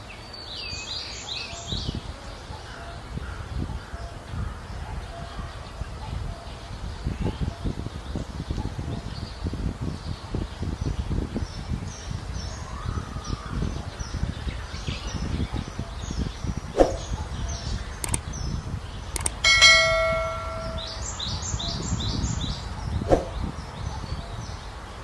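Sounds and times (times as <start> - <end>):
wind rumble on microphone: 0.0 - 25.0
birds chirping: 11.5 - 24.7
ringing metal clang: 19.2 - 21.3.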